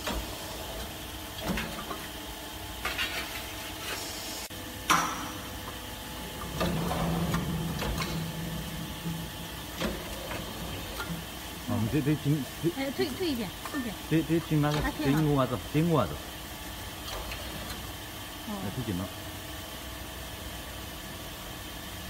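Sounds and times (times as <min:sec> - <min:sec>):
steady low hum: 0:00.0 - 0:22.0
steady machine hum: 0:00.0 - 0:22.0
roller pressing sheet-metal seam: 0:06.3 - 0:11.3.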